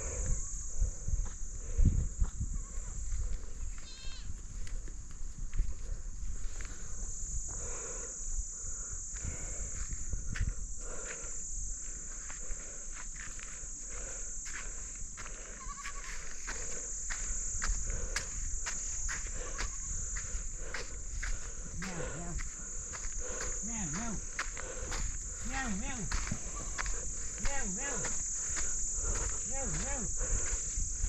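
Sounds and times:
high-pitched insect chorus: 0.0 - 31.0
goat hooves on stony path: 14.4 - 30.9.

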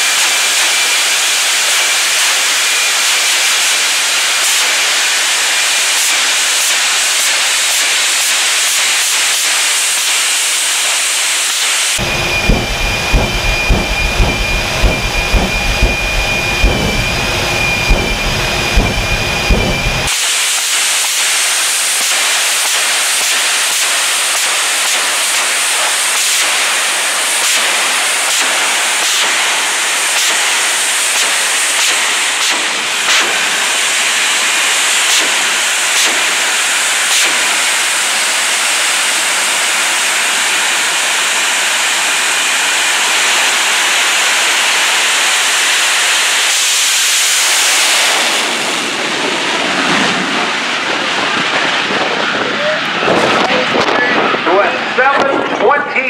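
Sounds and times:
jet engine whine and rumble: 0.0 - 56.0.

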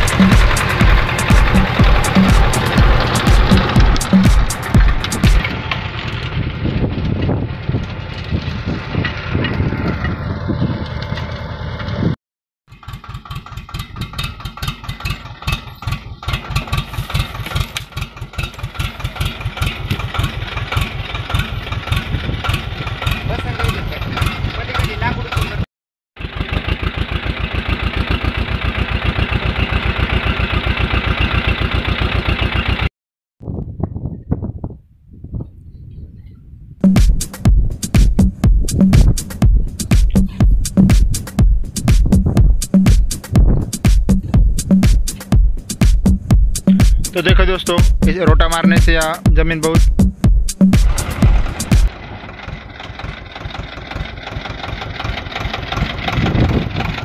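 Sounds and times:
rotavator tilling soil: 0.0 - 12.1, 12.7 - 25.6, 26.2 - 32.9, 50.8 - 57.0
tractor diesel engine running: 0.0 - 32.9, 36.8 - 57.0.

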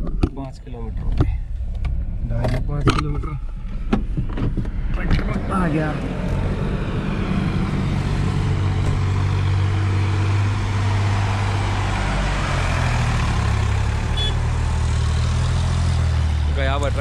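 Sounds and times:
tractor diesel engine passing: 4.8 - 17.0.

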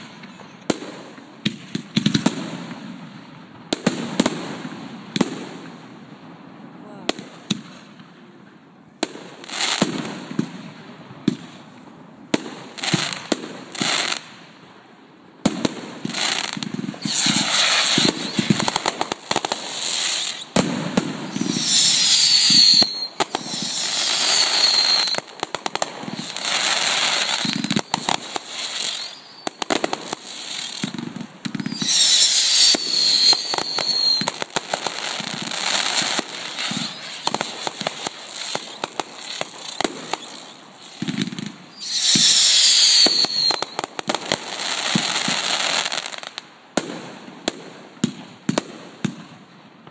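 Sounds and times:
firework bangs: 0.0 - 5.8, 15.4 - 49.4
firework shell bursts and crackling: 15.5 - 49.2
falling firework whistles: 16.0 - 46.4.

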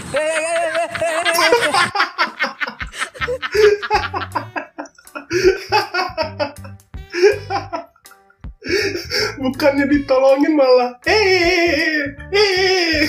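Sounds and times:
background music with bass line: 0.0 - 2.0, 2.8 - 13.0
man laughing hard: 0.0 - 7.9.

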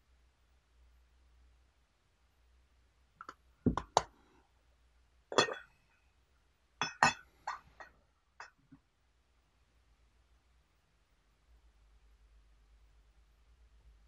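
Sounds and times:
glass pitcher clinking: 5.3 - 5.7, 6.8 - 8.5.

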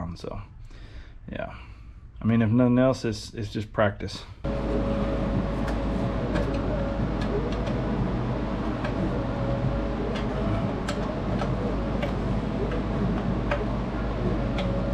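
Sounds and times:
steady low hum: 4.2 - 14.9.

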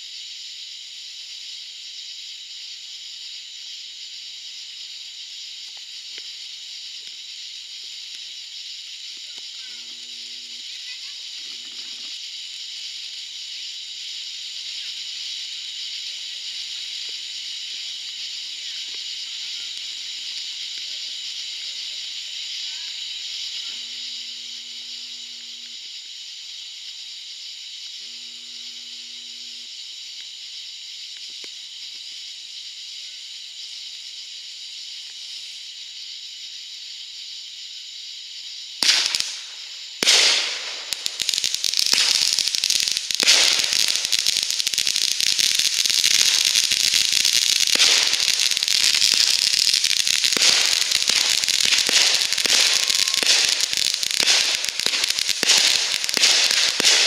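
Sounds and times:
firework fountain hissing: 0.0 - 28.3, 38.5 - 57.0
firework crackling: 1.6 - 26.6, 38.8 - 57.0
loud firework bangs: 38.8 - 57.0.

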